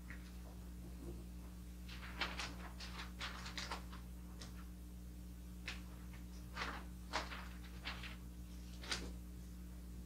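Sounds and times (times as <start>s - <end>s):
steady low hum: 0.0s - 10.0s
wrapping paper crinkling: 1.8s - 4.7s, 5.6s - 9.2s.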